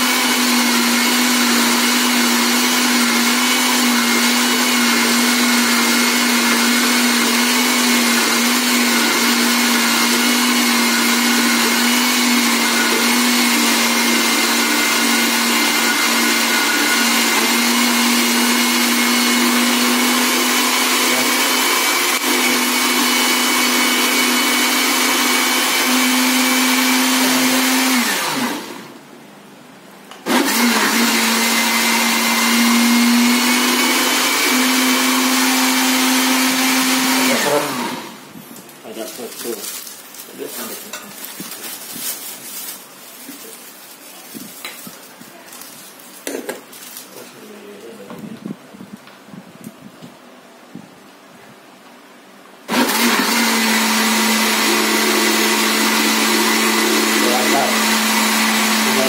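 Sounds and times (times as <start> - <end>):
blender motor running: 0.0 - 28.9, 30.3 - 38.3, 52.7 - 59.0
blender motor winding down: 0.0 - 28.9, 30.3 - 38.2, 52.7 - 59.0.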